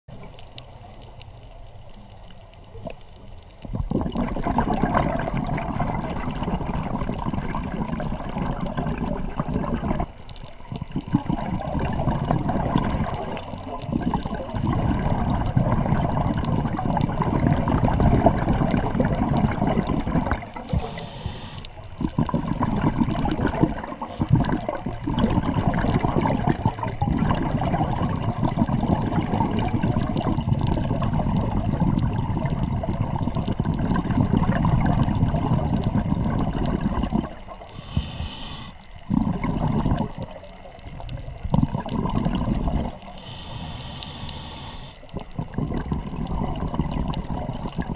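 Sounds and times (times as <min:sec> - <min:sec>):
underwater scuba bubbles: 0:00.1 - 0:47.9
water moving past camera: 0:00.1 - 0:47.9
short higher hiss: 0:20.7 - 0:21.8, 0:37.8 - 0:38.8, 0:43.2 - 0:45.0.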